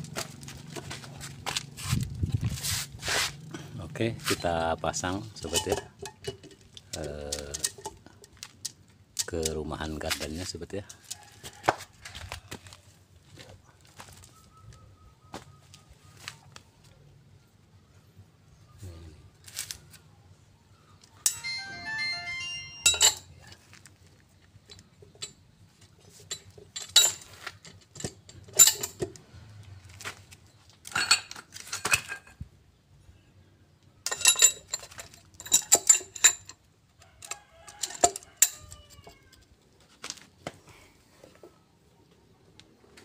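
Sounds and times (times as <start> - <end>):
metal clicks and clanks: 5.3 - 9.6, 26.1 - 29.2, 34.0 - 39.2
short jingle melody: 21.3 - 23.4.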